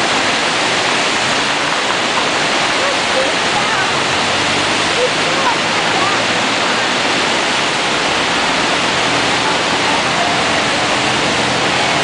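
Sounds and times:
river rushing through rapids: 0.0 - 12.0.

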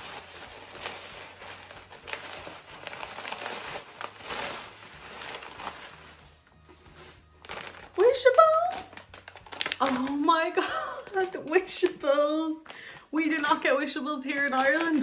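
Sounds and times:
crinkly packaging rustling: 0.0 - 15.0.

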